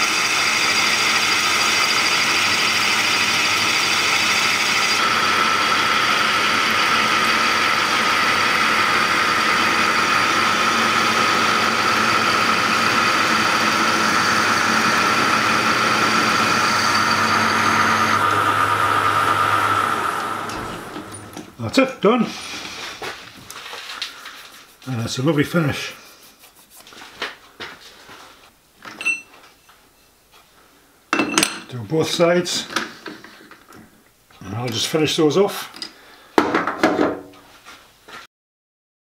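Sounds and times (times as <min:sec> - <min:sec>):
metalworking lathe cutting: 0:00.0 - 0:22.7
steady high machining note: 0:00.1 - 0:21.5.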